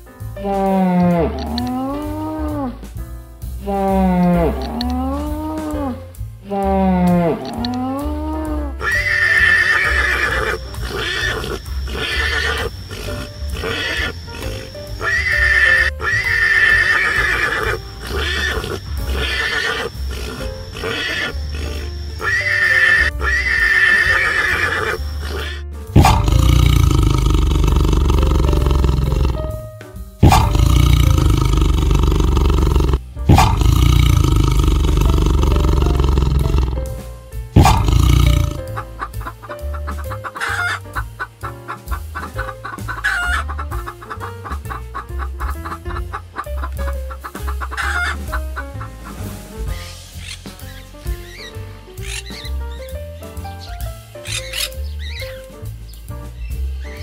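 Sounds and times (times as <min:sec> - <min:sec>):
background music: 0:00.0 - 0:57.0
animal calls: 0:06.6 - 0:29.5, 0:30.2 - 0:36.9, 0:37.6 - 0:52.5, 0:54.2 - 0:55.4
loud deep sound: 0:25.2 - 0:29.6, 0:30.2 - 0:38.8.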